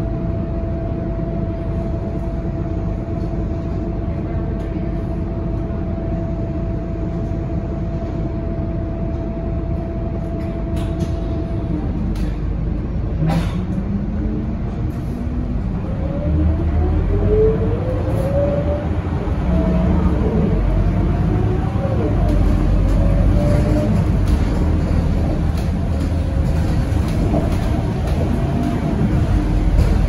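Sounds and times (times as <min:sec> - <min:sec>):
bus engine drone: 0:00.0 - 0:30.0
rising engine whine: 0:13.9 - 0:30.0.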